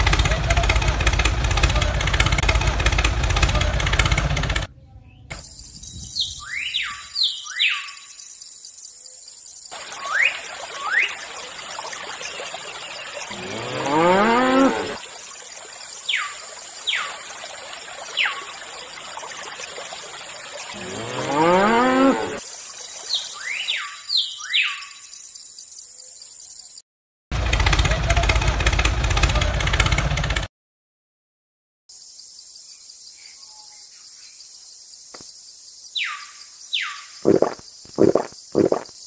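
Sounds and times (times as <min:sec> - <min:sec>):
cow mooing: 0:13.3 - 0:15.0, 0:20.8 - 0:22.4.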